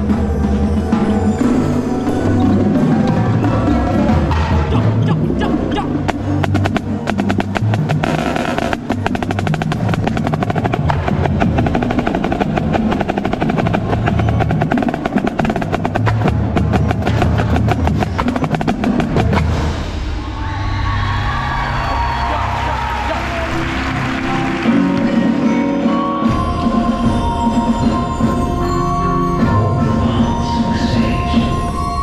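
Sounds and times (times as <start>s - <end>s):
low sustained ensemble notes: 0.0s - 20.3s
marching snare drum rolls: 6.1s - 19.9s.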